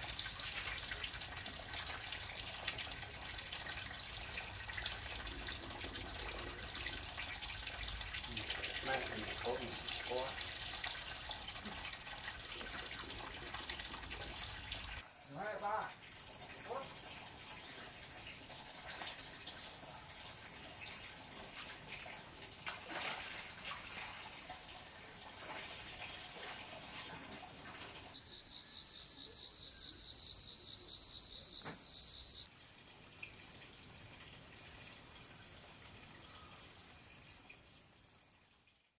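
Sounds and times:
insects droning: 0:00.0 - 0:38.9
pulsing insect call: 0:28.2 - 0:32.5.

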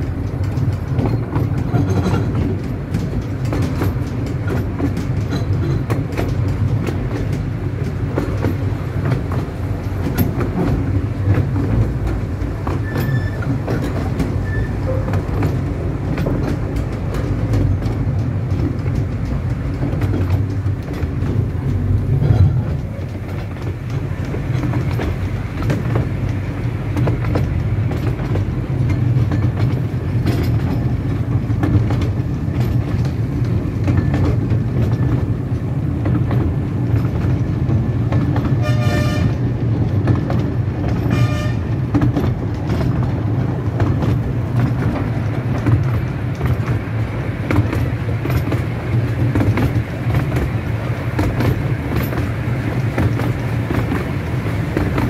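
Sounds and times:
train wheels rumbling on track: 0:00.0 - 0:55.0
locomotive toots: 0:12.6 - 0:15.6, 0:38.5 - 0:39.5, 0:40.9 - 0:41.9.

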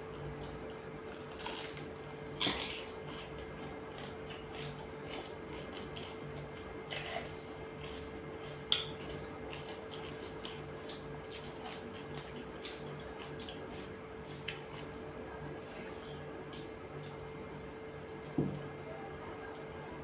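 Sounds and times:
steady low hum: 0:00.0 - 0:20.0
wet eating by hand: 0:00.0 - 0:20.0
chewing and lip smacks: 0:02.7 - 0:15.0.

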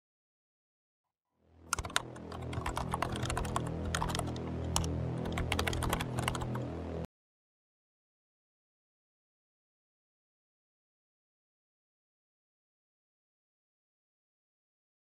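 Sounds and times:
steady low hum: 0:01.7 - 0:07.1
keyboard key clicks: 0:01.8 - 0:06.6.

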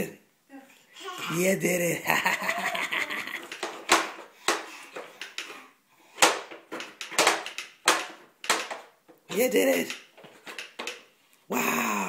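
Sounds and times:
wooden wagon clattering on floor: 0:03.1 - 0:05.6, 0:06.2 - 0:11.1
sharp knocks: 0:06.2 - 0:11.0.

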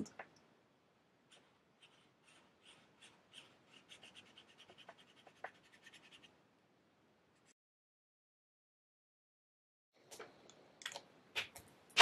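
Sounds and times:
marker scribbling on paper: 0:01.3 - 0:06.3.

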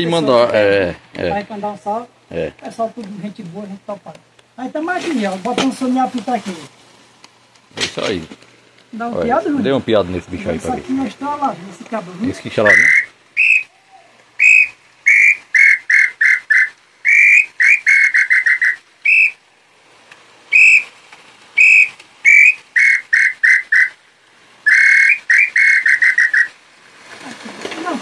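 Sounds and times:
wooden bird call whistling: 0:12.6 - 0:19.4, 0:20.5 - 0:21.0, 0:21.6 - 0:24.0, 0:24.6 - 0:26.6.

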